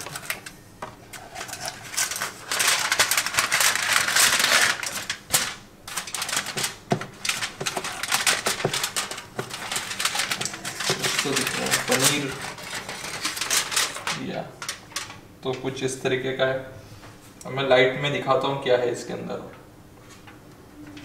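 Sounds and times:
aluminium foil crinkling: 0:00.0 - 0:15.2.

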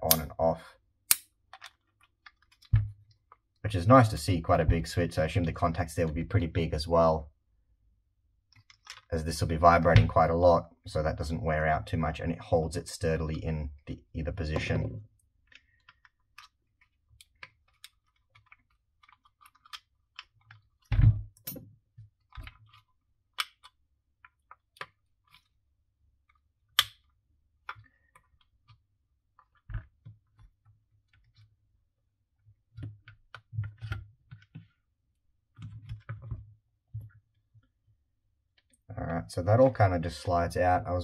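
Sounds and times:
plastic sander parts clicking: 0:01.1 - 0:03.4, 0:15.5 - 0:21.0.

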